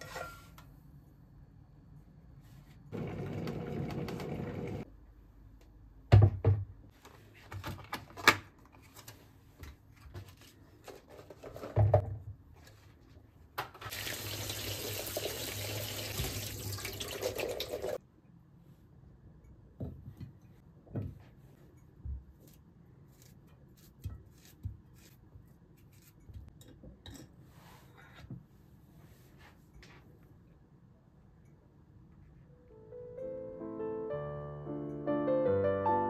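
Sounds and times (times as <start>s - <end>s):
tap water running into sink: 13.9s - 18.0s.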